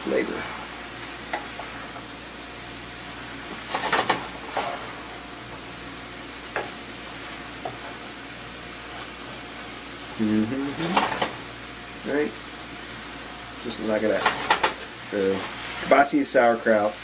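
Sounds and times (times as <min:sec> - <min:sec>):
sausage fat sizzling: 0:00.0 - 0:17.0
wooden spoon scraping a pan: 0:03.4 - 0:05.1.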